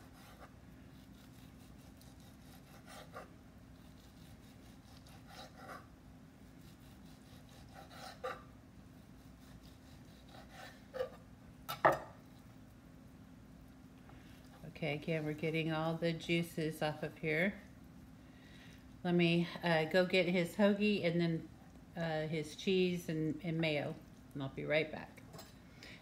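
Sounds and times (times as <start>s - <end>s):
serrated knife sawing meat: 0.0s - 5.8s, 6.6s - 8.4s, 9.0s - 11.0s.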